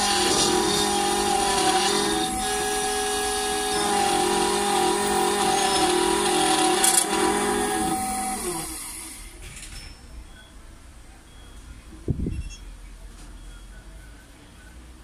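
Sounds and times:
cutter spindle whine: 0.0 - 9.3
key cutting machine milling metal: 0.0 - 9.3.

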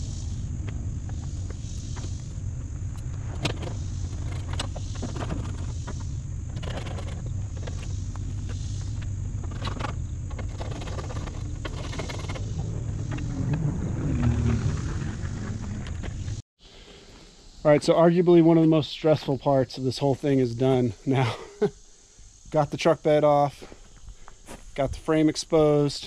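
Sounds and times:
wind rumble on microphone: 0.0 - 16.4.

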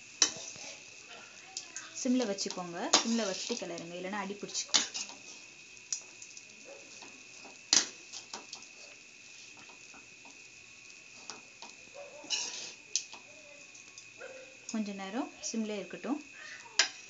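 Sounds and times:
metal spoon scraping a pan: 0.2 - 0.9, 2.4 - 3.8, 4.5 - 5.4, 11.2 - 12.8, 16.8 - 17.0.

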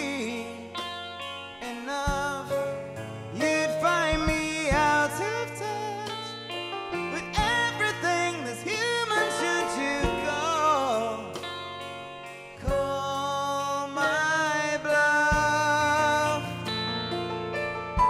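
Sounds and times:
live band guitar music: 0.0 - 18.0.

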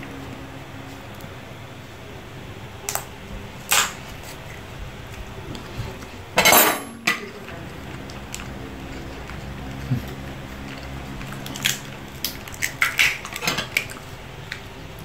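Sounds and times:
lobster shell cracking: 2.8 - 4.0, 8.0 - 14.7.

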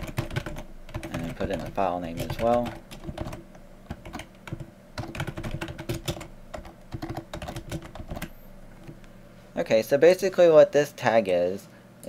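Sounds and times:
typing on computer keyboard: 0.0 - 9.0.

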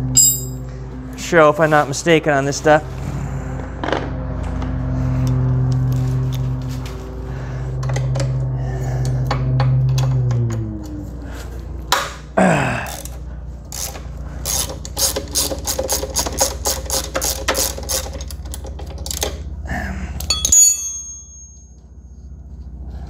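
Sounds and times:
metallic clank with ring: 0.1 - 0.7, 20.3 - 22.0
ratchet wrench clicking: 12.9 - 19.4.

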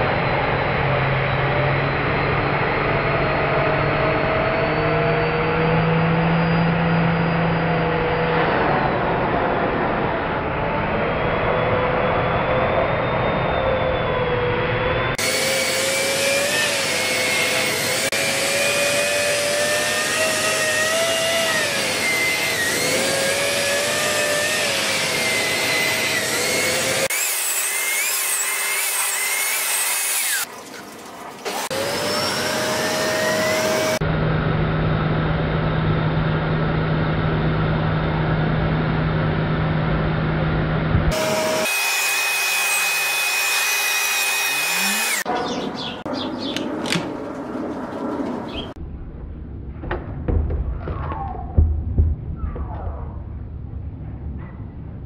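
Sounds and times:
vacuum cleaner motor whine: 0.0 - 9.0, 10.6 - 30.4, 31.4 - 35.1, 41.1 - 45.3.

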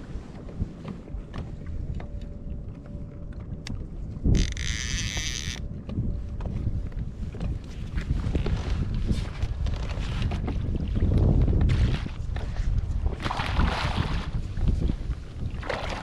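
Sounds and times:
wind rumble on microphone: 0.0 - 16.0
fishing reel drag buzzing: 4.3 - 5.6.

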